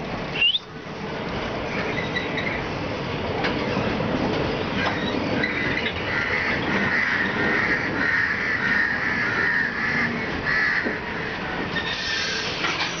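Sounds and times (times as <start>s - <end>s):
train coaches rumbling past: 0.0s - 13.0s.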